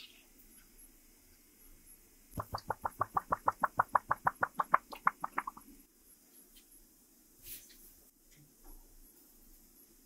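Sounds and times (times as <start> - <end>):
liquid glugging through funnel: 2.4 - 5.6.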